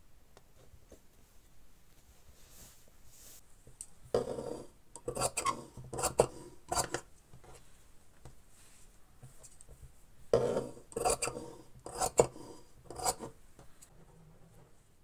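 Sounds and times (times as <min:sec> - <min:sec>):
fabric rustling: 0:00.8 - 0:03.5.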